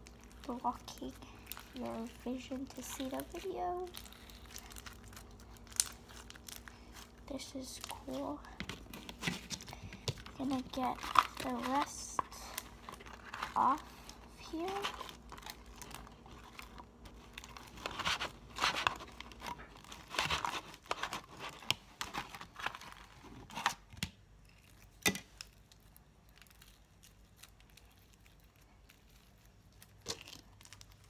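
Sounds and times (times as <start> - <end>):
slime peeling sticky tearing: 2.4 - 23.8.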